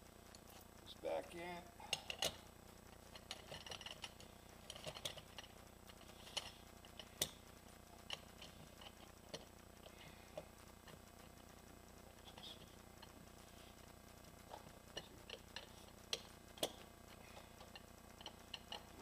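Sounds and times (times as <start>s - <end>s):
faint metallic clicks and clinks: 1.9s - 11.0s, 14.5s - 19.0s.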